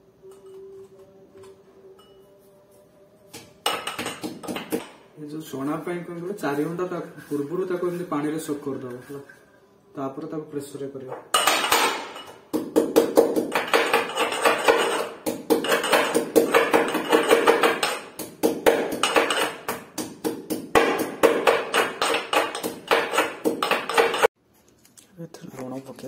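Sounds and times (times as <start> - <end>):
metal pestle pounding in mortar: 3.6 - 4.9, 11.3 - 24.3.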